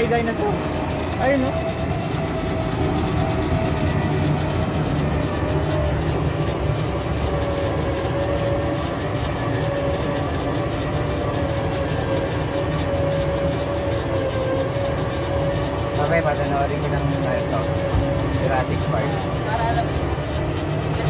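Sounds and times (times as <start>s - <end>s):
vehicle motor running: 0.0s - 21.0s.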